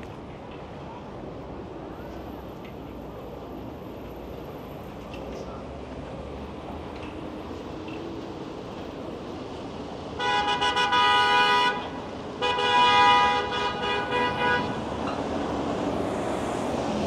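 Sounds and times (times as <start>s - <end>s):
street traffic: 0.0s - 17.0s
vehicle horn honking: 10.2s - 14.8s.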